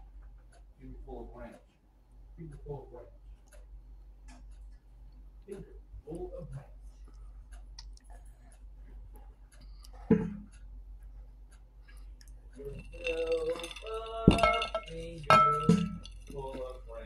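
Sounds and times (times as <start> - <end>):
lip smacks and mouth clicks: 7.0 - 8.4.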